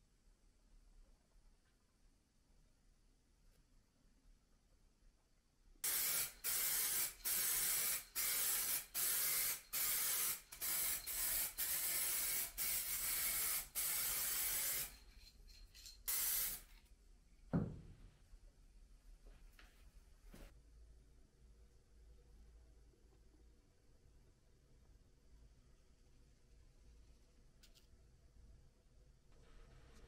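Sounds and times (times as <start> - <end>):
aerosol spray can hissing: 5.8 - 15.0, 15.8 - 16.7
thump: 17.5 - 18.1.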